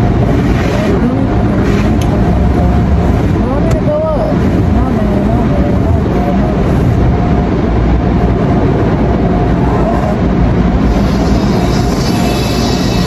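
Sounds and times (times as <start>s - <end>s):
car wash machinery rumbling: 0.0s - 13.0s
hiss: 10.9s - 13.0s.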